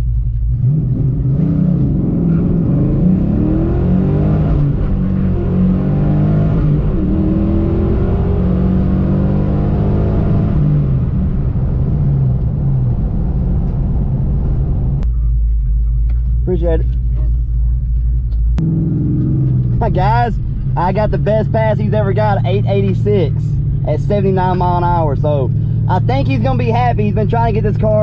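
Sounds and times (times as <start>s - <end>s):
car engine at full throttle: 0.0s - 28.0s.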